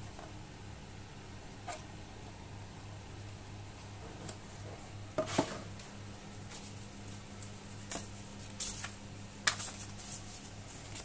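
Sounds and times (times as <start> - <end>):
steady low hum: 0.0 - 11.0
paper leaflet rustling: 6.5 - 11.0.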